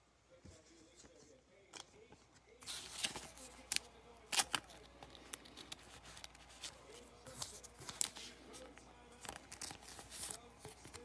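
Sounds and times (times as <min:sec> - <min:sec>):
cards shuffling: 0:00.5 - 0:11.0.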